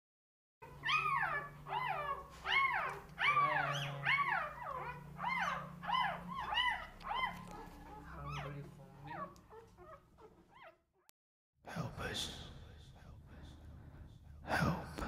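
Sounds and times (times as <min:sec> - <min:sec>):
puppies whining: 0:00.6 - 0:10.8.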